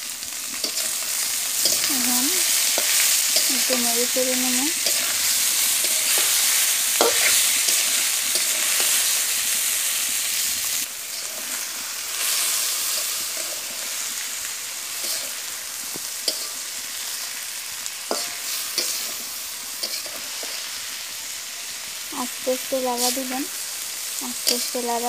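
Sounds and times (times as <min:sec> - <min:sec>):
food sizzling in hot oil: 0:00.0 - 0:25.0
metal spatula scraping a pot: 0:04.7 - 0:09.1.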